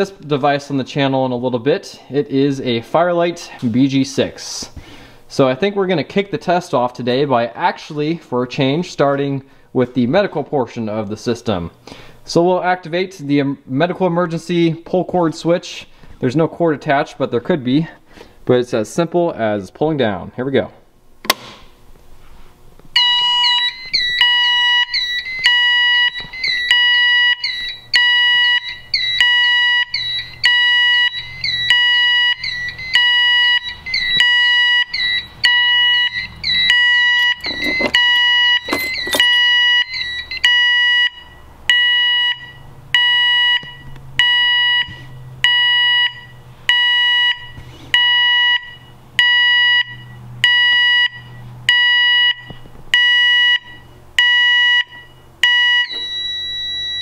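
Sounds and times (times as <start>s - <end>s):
loud alarm beep: 23.0s - 57.0s.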